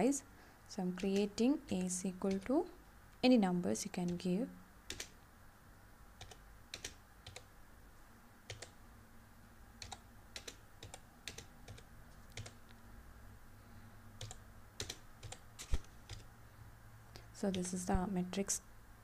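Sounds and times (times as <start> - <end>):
faint keyboard keystrokes: 9.8 - 12.8.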